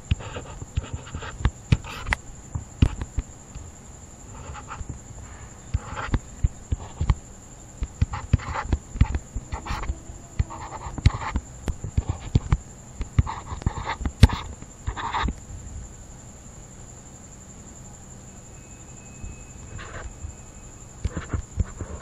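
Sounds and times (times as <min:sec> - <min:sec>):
handwriting clicks and taps: 0:00.0 - 0:03.3, 0:04.4 - 0:05.0, 0:05.7 - 0:07.2, 0:07.8 - 0:15.4, 0:21.0 - 0:22.0
high-pitched electrical whine: 0:00.0 - 0:22.0
short breathy hisses: 0:05.2 - 0:05.8.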